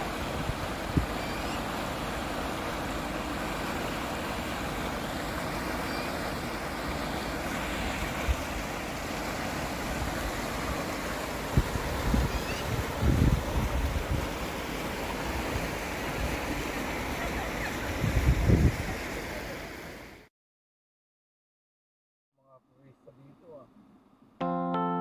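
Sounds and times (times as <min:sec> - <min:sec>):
river water rushing over rocks: 0:00.0 - 0:20.2
wind buffeting microphone: 0:11.5 - 0:14.4, 0:17.7 - 0:19.0.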